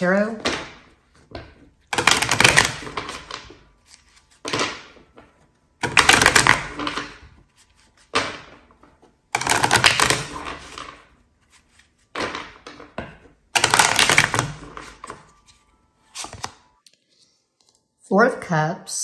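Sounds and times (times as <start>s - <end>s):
cards being riffle-shuffled: 1.9s - 5.0s, 9.4s - 12.5s, 13.6s - 16.6s.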